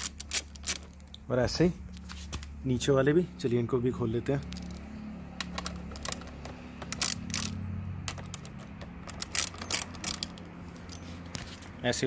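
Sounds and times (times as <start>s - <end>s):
socket wrench clicking: 0.0s - 1.2s, 4.4s - 11.0s.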